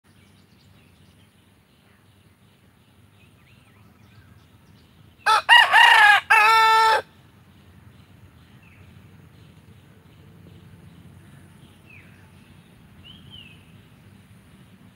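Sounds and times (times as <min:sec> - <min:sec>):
rooster crowing: 0:05.3 - 0:07.1.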